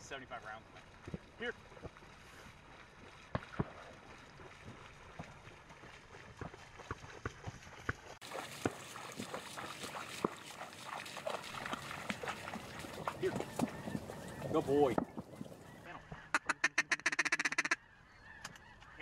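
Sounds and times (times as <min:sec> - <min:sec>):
dog splashing through water: 0:00.7 - 0:15.8.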